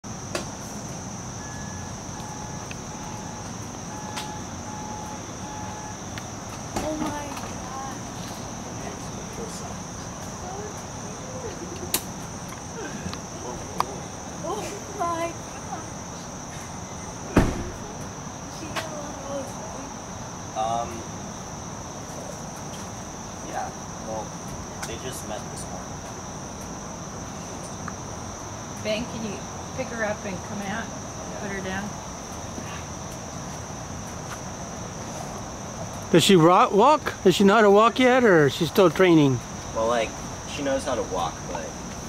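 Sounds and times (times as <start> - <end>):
insects droning: 0.0 - 42.0
loud thump: 17.3 - 18.0.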